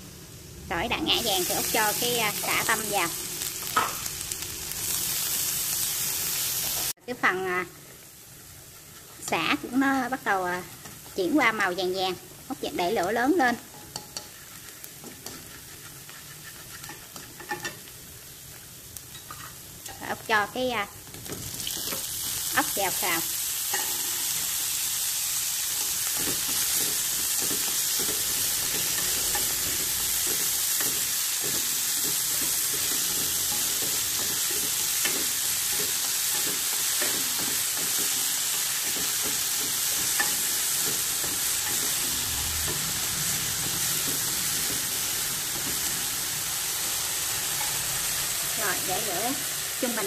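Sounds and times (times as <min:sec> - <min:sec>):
meat sizzling in a pan: 0:00.0 - 0:50.0
scraping stirring strokes: 0:14.0 - 0:17.8.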